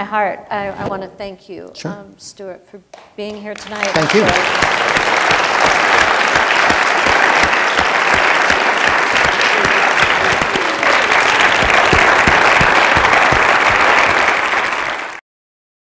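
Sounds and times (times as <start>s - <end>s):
audience applauding: 3.6s - 15.2s.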